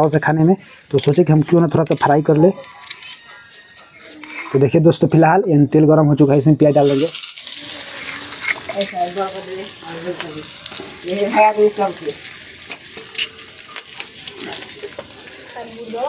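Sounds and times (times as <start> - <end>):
onion sizzling in hot oil: 6.7 - 16.0.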